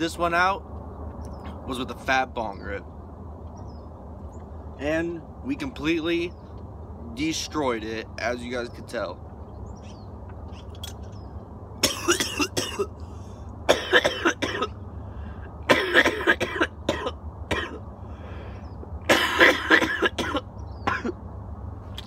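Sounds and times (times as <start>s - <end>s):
man coughing hard: 11.8s - 13.0s, 13.7s - 14.8s, 15.7s - 17.8s, 19.1s - 21.2s.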